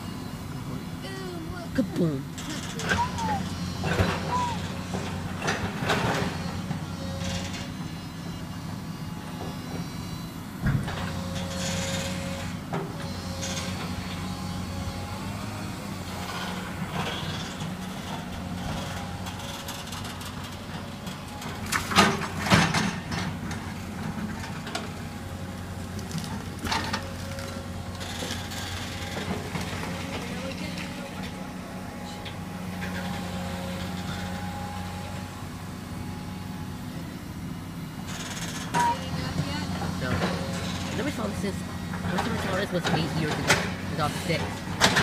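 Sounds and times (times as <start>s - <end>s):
excavator engine hum: 0.0s - 45.0s.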